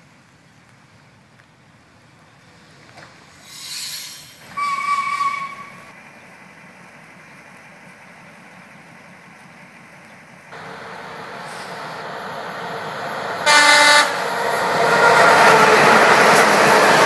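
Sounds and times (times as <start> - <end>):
rail vehicle rolling past: 0.1 - 17.0
railway crane car horn blast: 4.6 - 5.8, 13.4 - 15.9.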